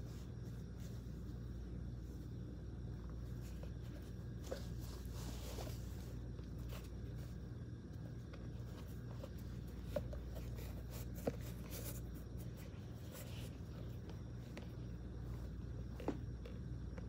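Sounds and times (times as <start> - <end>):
steady low hum: 0.0 - 17.0
shoes rubbing and brushing: 3.1 - 7.4, 8.2 - 16.6.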